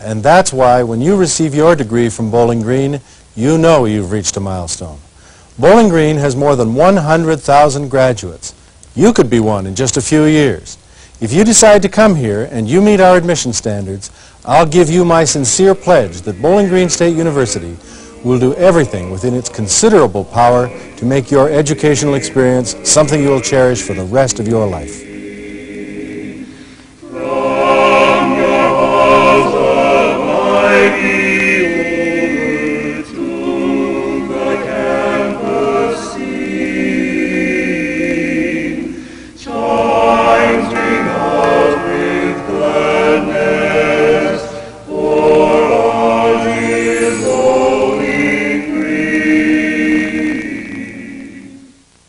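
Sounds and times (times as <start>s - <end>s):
choir singing: 14.8s - 51.8s.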